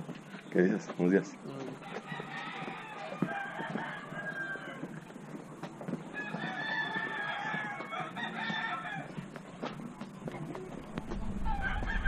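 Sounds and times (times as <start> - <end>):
roosters crowing: 1.6 - 9.9, 11.2 - 12.0.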